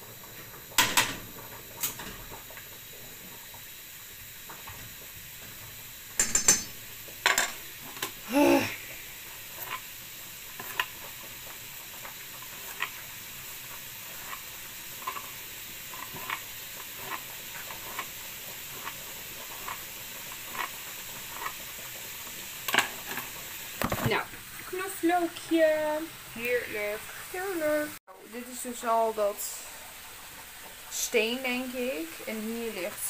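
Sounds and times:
bacon sizzling in a frying pan: 0.0 - 33.0.

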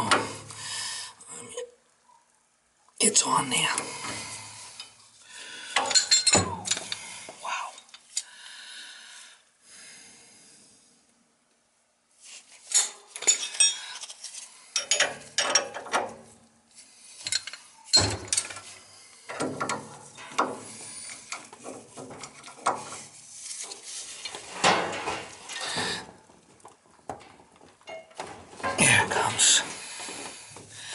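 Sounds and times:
wrenches clinking on metal fittings: 5.8 - 7.1, 12.7 - 16.1, 17.2 - 18.7.

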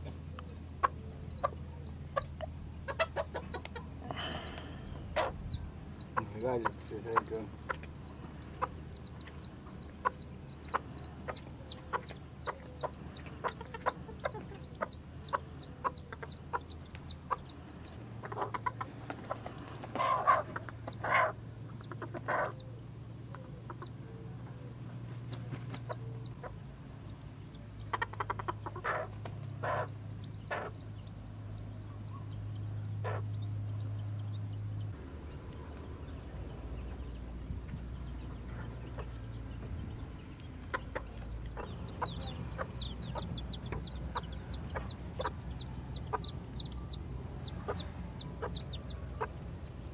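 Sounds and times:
chicks peeping: 0.0 - 49.9
steady low hum: 0.0 - 49.9.

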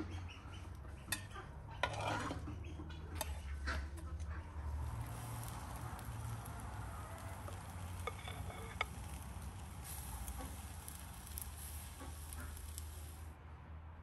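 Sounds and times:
batter sizzling in frying pan: 4.6 - 13.3.

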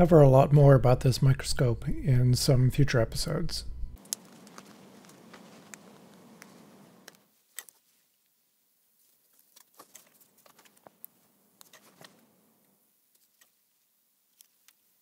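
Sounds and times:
faint low hum: 0.0 - 15.0
crinkling of peeled paper liner: 4.0 - 8.3.

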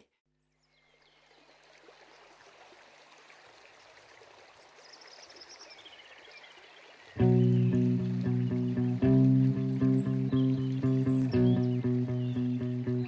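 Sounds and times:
faint flowing water: 0.5 - 13.0
high chirps: 7.2 - 13.0.

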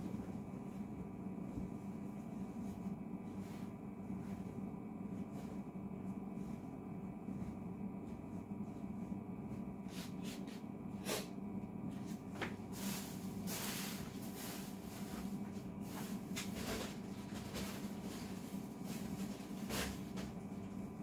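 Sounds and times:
steady low hum: 0.0 - 21.0
fabric rustling: 0.1 - 9.6.

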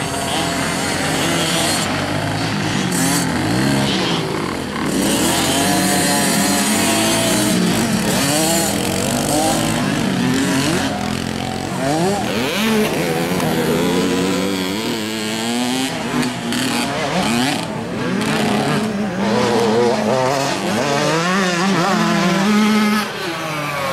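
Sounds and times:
mini motocross bikes revving: 0.0 - 23.9.

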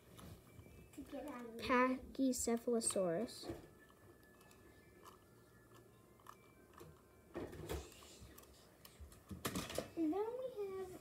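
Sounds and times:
plastic toy clattering down: 9.3 - 10.0.

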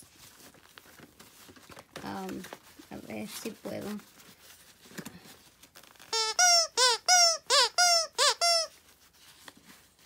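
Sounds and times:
dog toy squeaks: 6.1 - 8.7.

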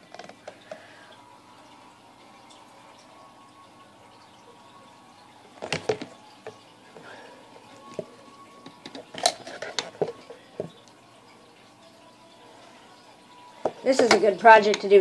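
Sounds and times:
plastic container clicks and knocks: 5.6 - 6.1.

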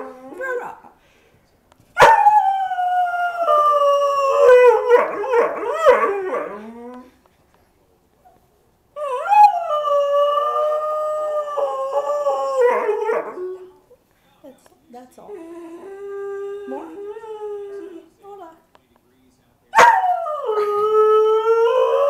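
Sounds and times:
dog howling: 2.0 - 7.1, 9.0 - 13.8, 15.3 - 18.1, 19.8 - 22.0.

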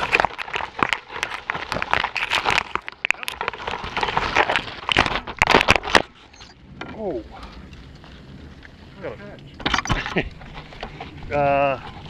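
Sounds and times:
branches snapping: 0.0 - 6.2
leaves and branches rustling: 0.0 - 12.0.

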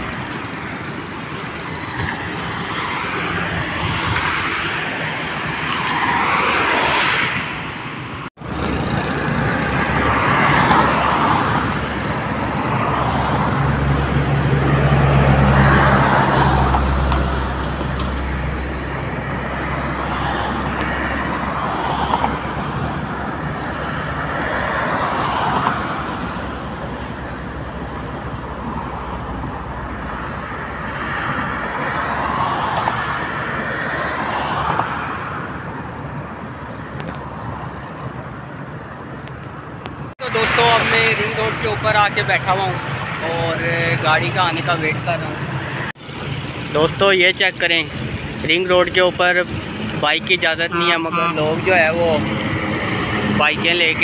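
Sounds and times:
heavy vehicle engine drone: 0.0 - 5.6, 7.5 - 54.0
cars passing: 0.0 - 54.0.

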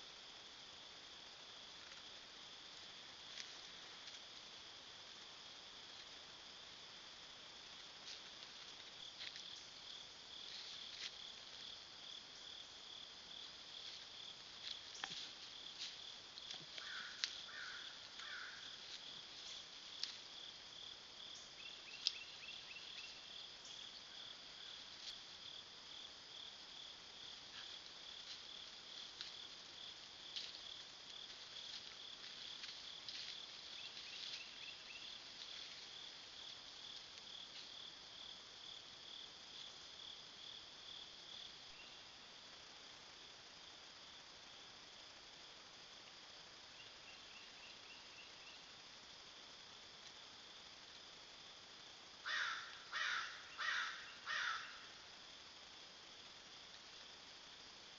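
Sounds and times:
insects trilling: 0.0 - 57.9.

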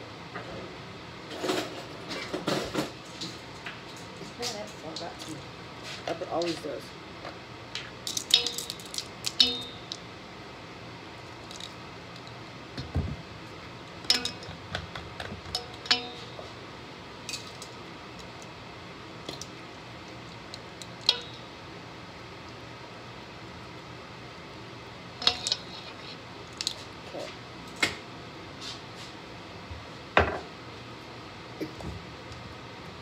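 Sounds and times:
plastic spoons and caps clattering: 8.1 - 10.0.

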